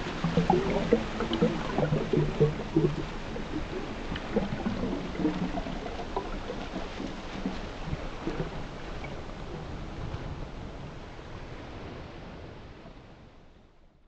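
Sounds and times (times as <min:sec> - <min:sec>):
small splashes: 0:00.0 - 0:09.5
sea water churning: 0:00.0 - 0:13.2.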